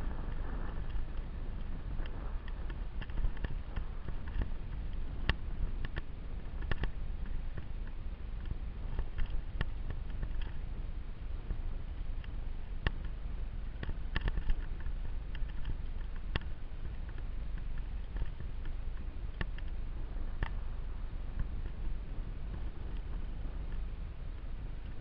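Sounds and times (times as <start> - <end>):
low microphone rumble: 0.0 - 25.0
clicks and knocks of stones: 2.0 - 10.7, 12.2 - 20.6.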